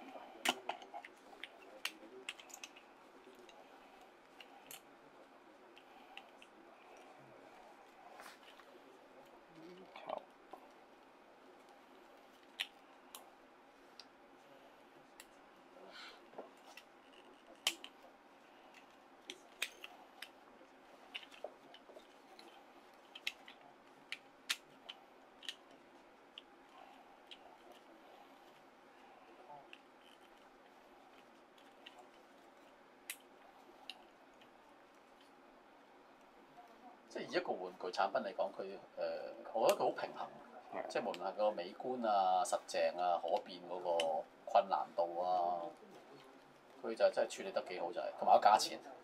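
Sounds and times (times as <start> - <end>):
plastic figure parts clicking and snapping: 0.4 - 2.8, 16.6 - 18.0, 21.1 - 25.7
plastic figure clicking and snapping: 23.1 - 25.7.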